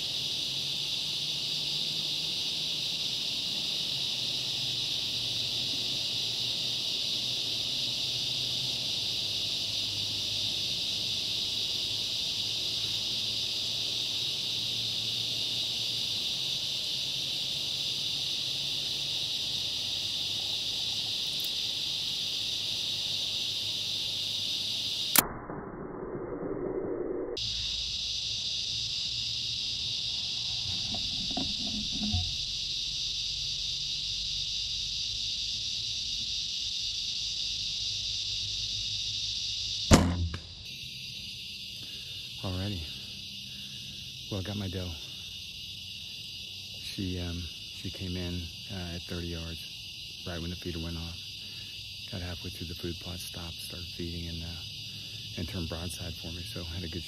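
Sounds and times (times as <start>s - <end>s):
crickets and insects chirping: 0.0s - 25.3s, 26.0s - 57.0s
bow shot crack: 39.9s - 40.6s.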